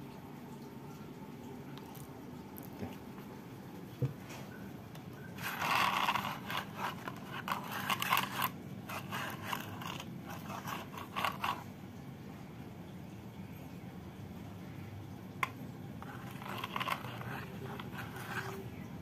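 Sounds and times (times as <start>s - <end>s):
handling scrapes and rustling: 5.3s - 11.7s, 16.0s - 18.8s.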